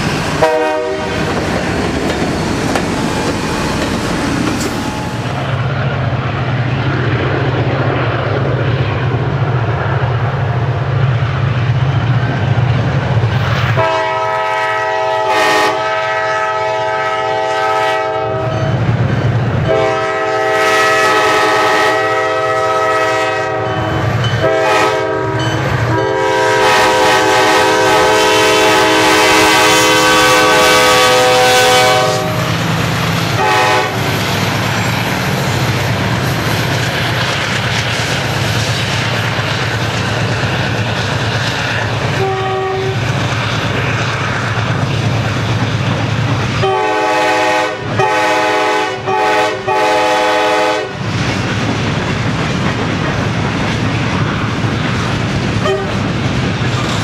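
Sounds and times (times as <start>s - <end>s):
train low rumble: 0.0s - 57.0s
train air horn blasts: 0.4s - 1.3s, 13.8s - 18.7s, 19.6s - 32.6s, 33.3s - 34.1s, 42.2s - 43.0s, 46.6s - 51.0s, 55.6s - 56.0s.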